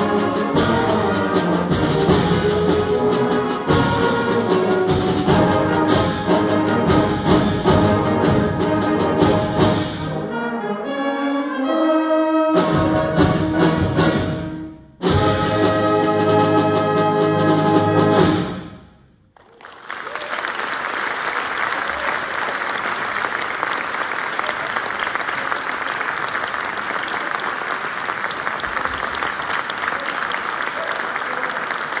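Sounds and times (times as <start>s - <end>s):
audience applause: 19.4s - 32.0s.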